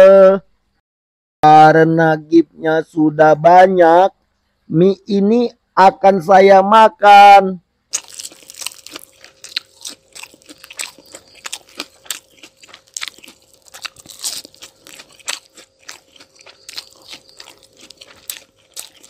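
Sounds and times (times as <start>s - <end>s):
person crunching and chewing noodles: 7.9s - 19.0s.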